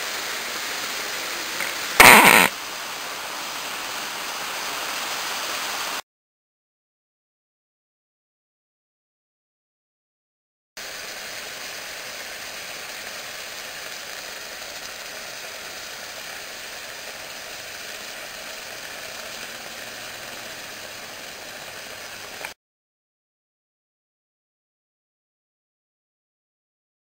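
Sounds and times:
steam hissing and sizzling: 0.0 - 6.0, 10.8 - 22.6.

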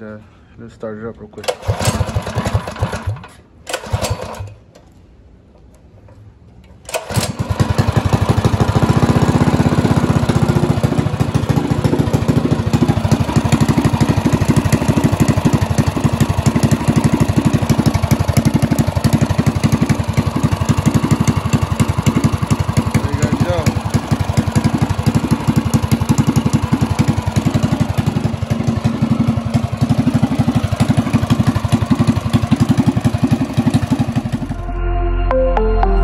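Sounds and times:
pull starter cord: 1.3 - 5.0, 6.1 - 10.5, 17.8 - 28.2
small engine running: 1.4 - 4.5, 6.9 - 34.6.

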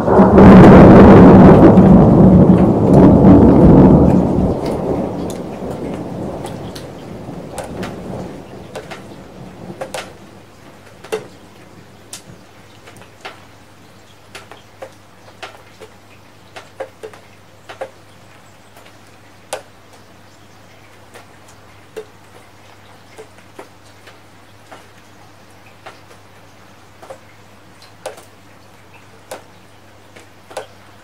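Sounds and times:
thunder rolling: 0.0 - 12.4
faint rain hiss: 0.0 - 31.0
raindrops dripping on hard surface: 0.8 - 31.0.

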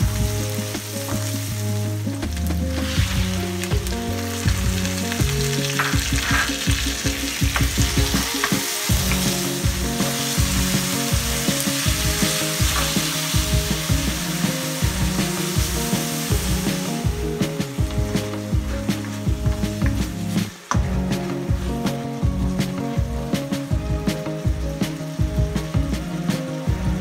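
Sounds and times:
onions sizzling in oil: 0.0 - 27.0
wooden spatula scraping pan: 5.6 - 17.0.

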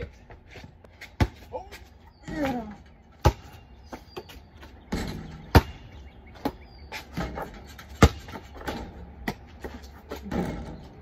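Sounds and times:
basketball bouncing on hard ground: 0.0 - 11.0.

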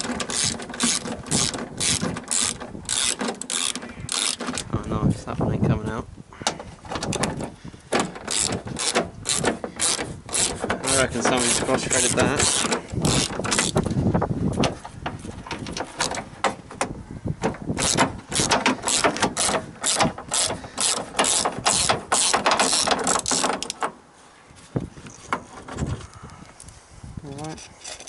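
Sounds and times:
hand ratchet clicking: 0.0 - 4.7, 8.0 - 13.9, 17.8 - 23.9.

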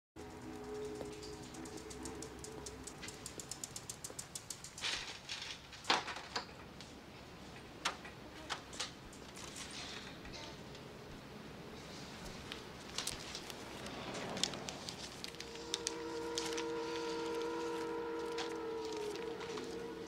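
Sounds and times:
bicycle freewheel ticking: 0.2 - 4.8.

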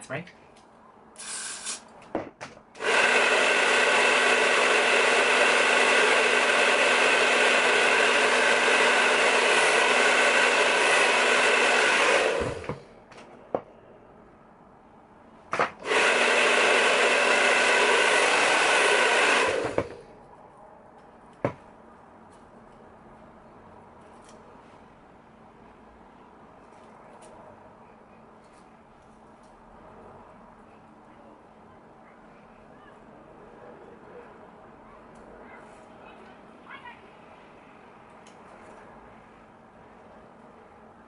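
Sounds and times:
hair dryer whirring: 2.8 - 12.8, 15.6 - 20.1.

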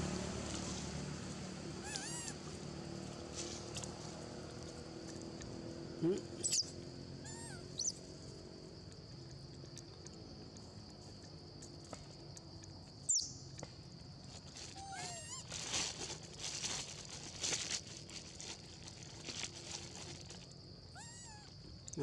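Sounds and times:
high insect drone: 0.0 - 22.0
scuffing on gravel and leaves: 0.3 - 5.1, 14.3 - 20.6
monkey call: 1.8 - 2.4, 6.0 - 8.0, 14.7 - 15.4
short high squeak: 1.8 - 2.4, 6.4 - 7.9.

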